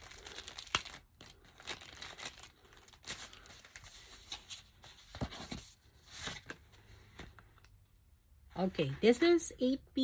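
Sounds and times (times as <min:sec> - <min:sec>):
paper envelopes rustling: 0:00.0 - 0:07.4.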